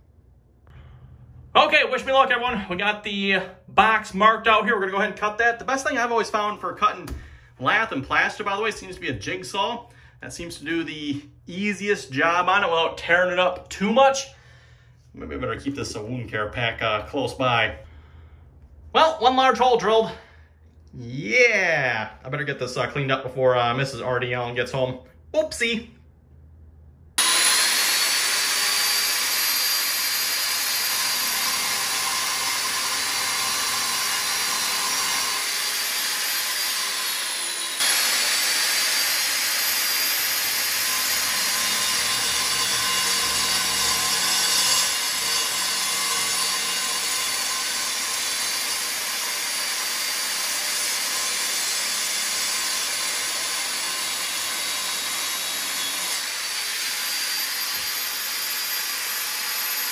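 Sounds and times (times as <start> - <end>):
angle grinder cutting wall: 27.2 - 59.9.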